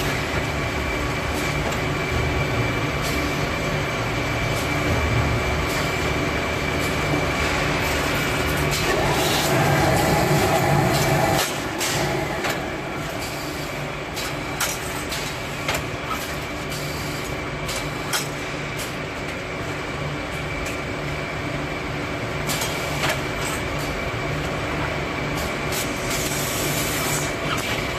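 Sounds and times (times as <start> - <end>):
machinery humming: 0.0 - 27.9.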